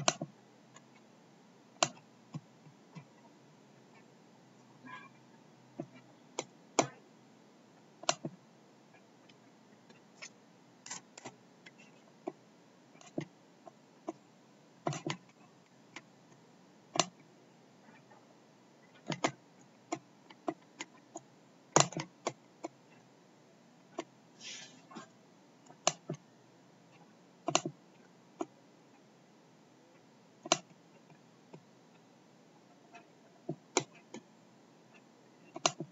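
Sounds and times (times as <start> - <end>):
computer mouse clicks: 0.0 - 1.0, 1.8 - 3.1, 8.0 - 8.4, 27.4 - 27.8, 30.4 - 31.6, 33.0 - 34.3, 35.0 - 35.9
brief scrape: 24.4 - 25.1.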